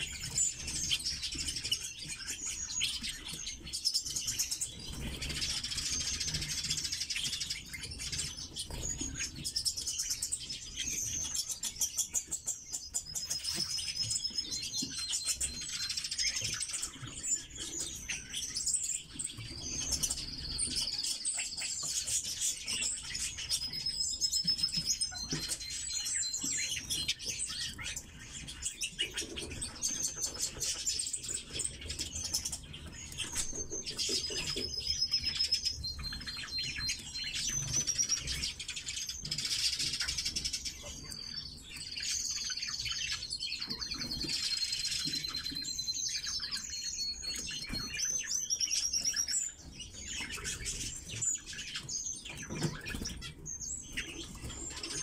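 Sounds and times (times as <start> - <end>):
bird chirping and trilling: 0.0 - 55.0.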